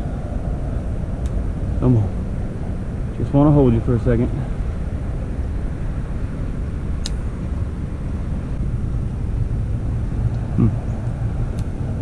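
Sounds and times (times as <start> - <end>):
low outdoor rumble: 0.0 - 12.0
brief low vocal sound: 10.5 - 10.9.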